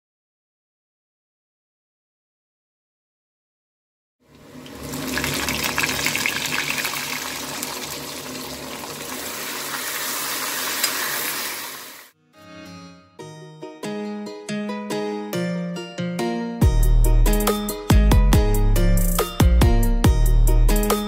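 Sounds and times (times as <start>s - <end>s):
onions sizzling in hot oil: 4.4s - 12.1s
plucked-string music: 12.2s - 16.7s.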